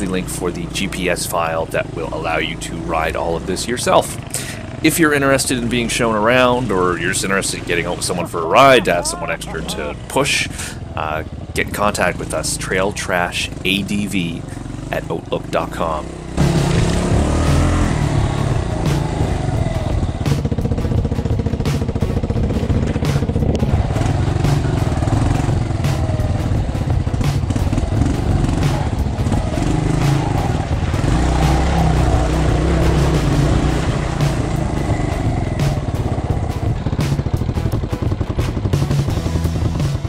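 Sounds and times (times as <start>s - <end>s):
motorcycle engine running: 0.0s - 40.0s
bike knocks and rattles: 20.3s - 30.0s, 35.3s - 40.0s.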